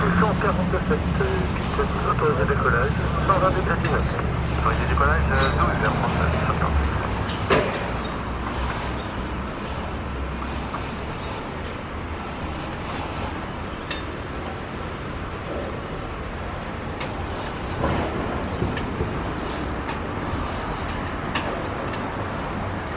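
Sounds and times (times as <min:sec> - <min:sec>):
distant jet engines rumbling: 0:00.0 - 0:09.6.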